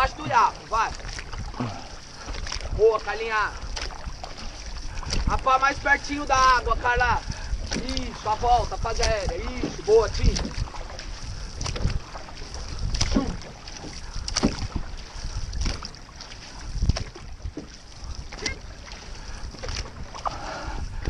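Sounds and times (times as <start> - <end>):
paddles splashing in water: 0.0 - 21.0.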